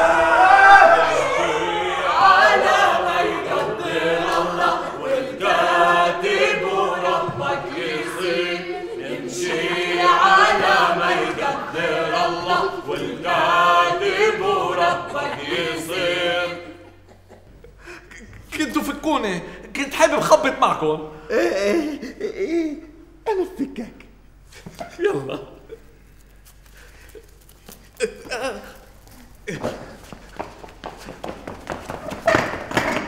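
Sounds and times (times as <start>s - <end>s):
group singing unaccompanied: 0.0s - 17.1s.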